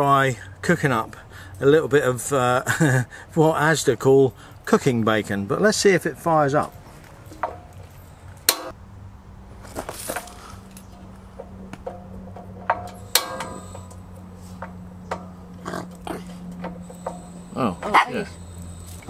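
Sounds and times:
low hum: 6.6 - 19.0
gas barbecue igniter clicks: 12.7 - 15.4.

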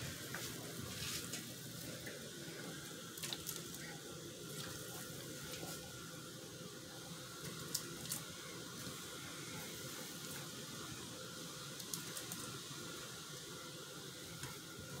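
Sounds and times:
sauce simmering hiss: 0.0 - 15.0.

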